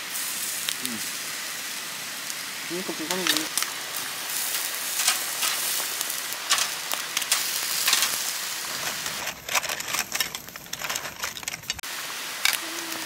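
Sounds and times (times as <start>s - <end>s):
beef sizzling on a grill: 0.0s - 13.0s.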